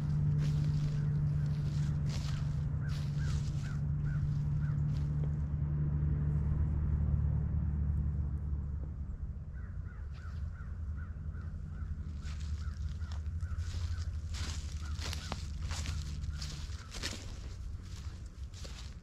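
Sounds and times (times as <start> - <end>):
bird calling: 0.0 - 5.0, 9.6 - 18.9
steady low rumble: 0.0 - 19.0.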